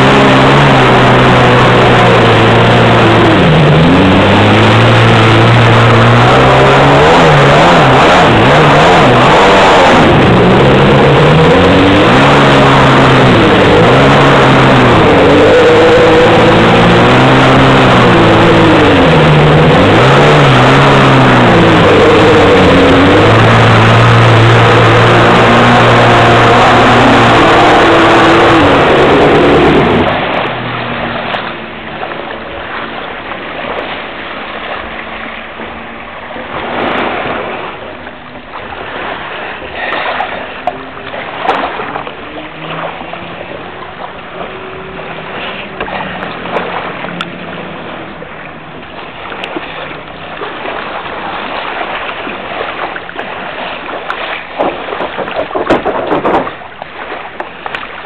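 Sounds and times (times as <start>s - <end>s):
jet ski engine running: 0.0s - 58.0s
water splashing against hull: 0.0s - 58.0s.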